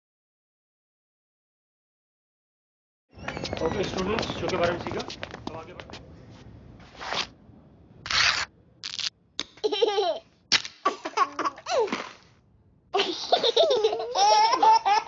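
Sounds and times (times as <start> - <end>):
babies giggling and laughing: 9.6 - 10.3, 10.9 - 12.0, 13.0 - 15.0.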